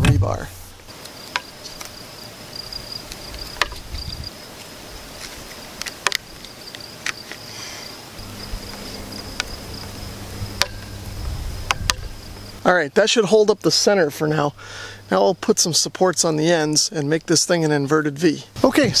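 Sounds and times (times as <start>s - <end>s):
insect trilling: 1.0s - 12.7s
low hum: 8.2s - 12.6s
metal pole clicks and knocks: 10.6s - 10.9s, 11.7s - 12.1s.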